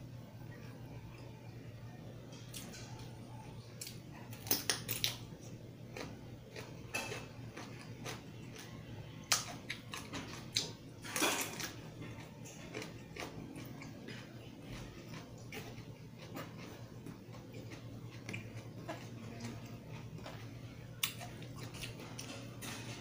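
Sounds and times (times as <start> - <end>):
low steady hum: 0.0 - 23.0
cucumber crunching being chewed: 3.8 - 10.9, 11.6 - 22.7.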